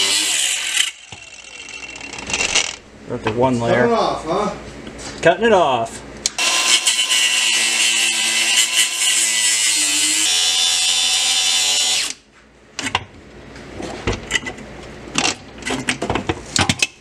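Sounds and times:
angle grinder cutting steel: 0.0s - 2.7s, 6.4s - 12.2s.

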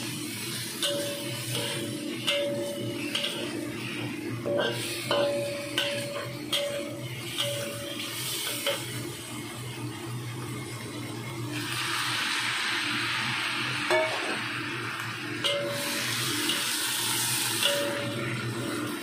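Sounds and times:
food sizzling: 0.0s - 19.0s
spatula striking wok: 0.5s - 9.1s, 13.9s - 14.5s, 15.4s - 16.8s, 17.6s - 18.9s.

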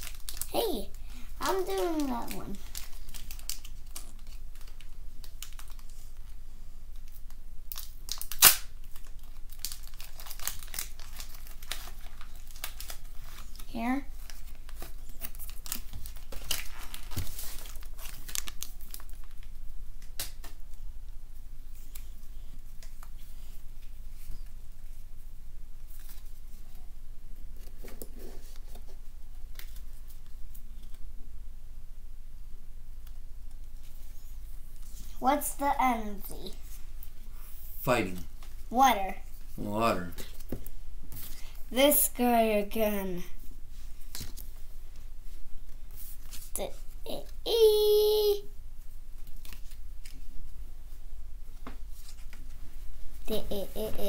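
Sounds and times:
foil wrapper crinkling and tearing: 0.0s - 0.5s, 1.4s - 6.3s, 7.0s - 20.6s.

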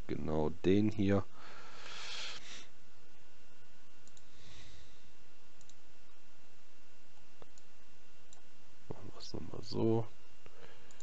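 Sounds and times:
low background hiss: 0.0s - 11.0s
computer mouse clicking: 4.0s - 4.3s, 5.6s - 5.8s.

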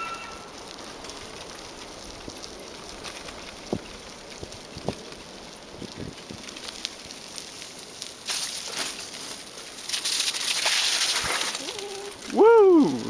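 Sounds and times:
bicycle tyres hissing on wet pavement: 0.0s - 13.0s
person calling out: 11.6s - 13.0s.

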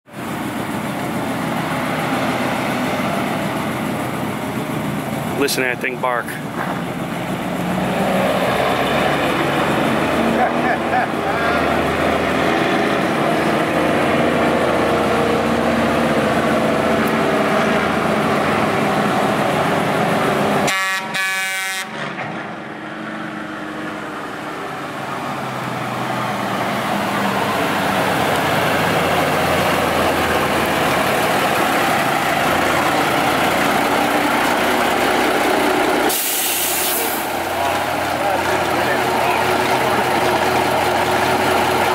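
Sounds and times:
diesel truck engine running: 0.1s - 41.9s
air horn blasts: 20.6s - 22.1s.

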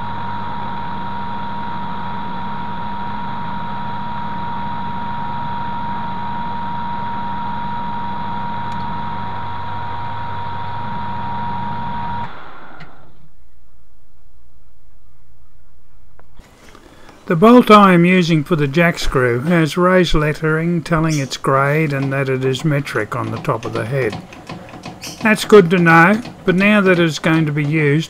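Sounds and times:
metal lathe running: 20.2s - 28.0s.

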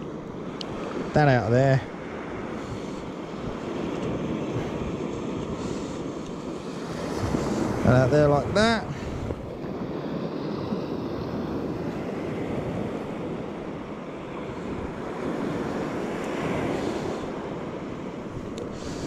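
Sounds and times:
surf breaking on beach: 0.7s - 19.0s
wind noise on microphone: 6.8s - 13.5s.

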